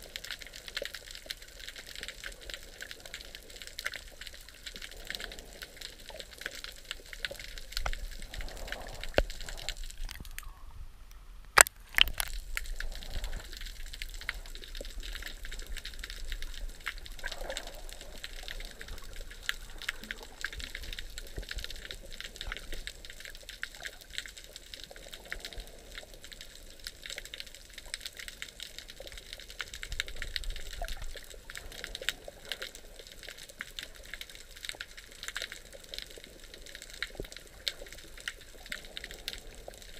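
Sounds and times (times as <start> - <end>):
underwater crackle of clicks: 0.0 - 39.9.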